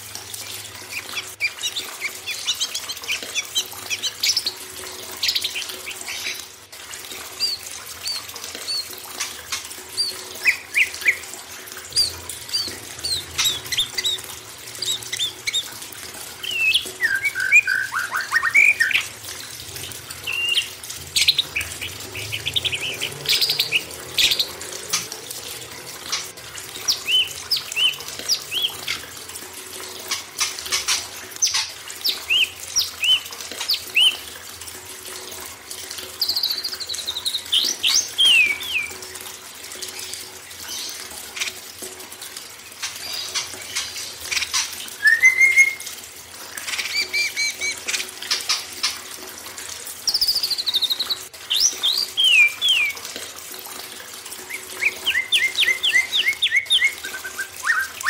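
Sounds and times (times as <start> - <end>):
running water: 0.0 - 58.0
songbirds chirping and trilling: 0.5 - 34.4, 36.0 - 39.2, 50.0 - 53.2, 54.4 - 58.0.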